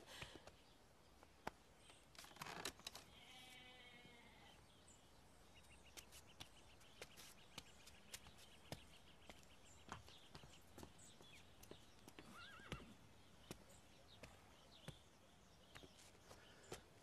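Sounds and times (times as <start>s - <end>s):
faint distant bleat: 3.0s - 4.6s.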